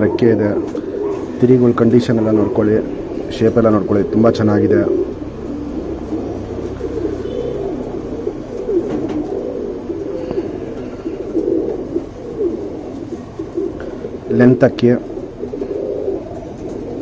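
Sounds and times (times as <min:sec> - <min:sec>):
pigeons cooing: 0:00.0 - 0:17.0.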